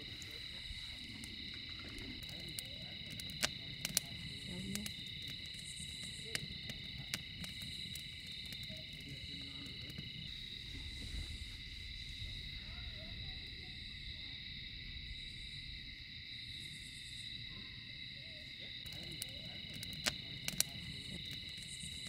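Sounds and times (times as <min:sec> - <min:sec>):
campfire crackling pops: 0:00.0 - 0:14.2, 0:18.6 - 0:22.0
crickets chirping: 0:00.0 - 0:22.0.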